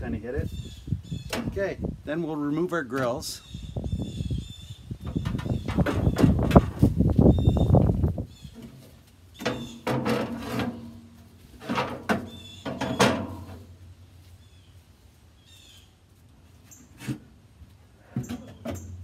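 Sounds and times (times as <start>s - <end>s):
metal grates clanking: 9.4s - 13.6s.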